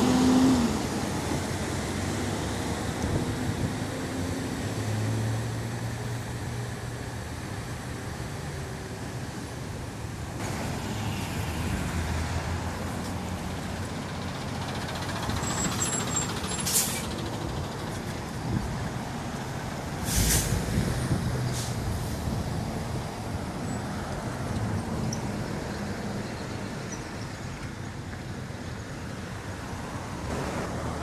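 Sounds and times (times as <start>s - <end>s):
vehicles passing in traffic: 0.0s - 31.0s
truck air hiss: 14.4s - 17.3s, 20.0s - 22.4s.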